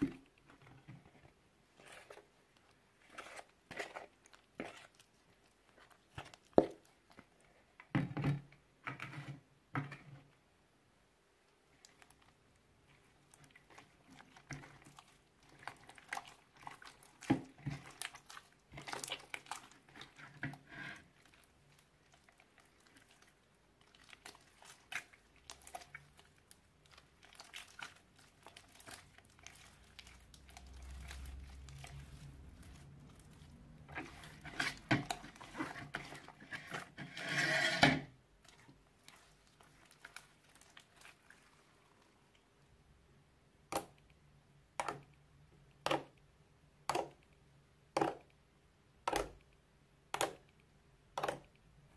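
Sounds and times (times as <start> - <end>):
slime squished by hand: 11.7 - 20.4, 21.0 - 36.8.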